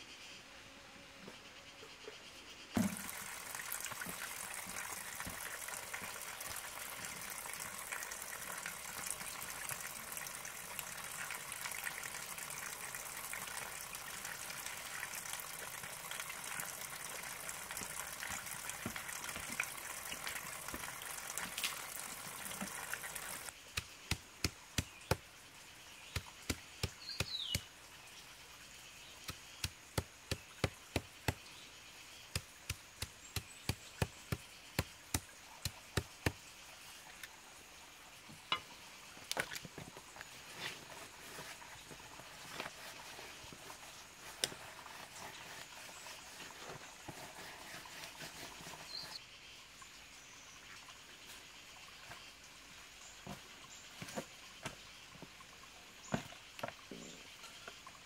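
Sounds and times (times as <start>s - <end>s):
stream water over rocks: 2.8s - 58.0s
knife chopping greens on stone: 23.7s - 25.2s, 26.1s - 27.7s, 29.2s - 31.4s, 32.3s - 36.4s.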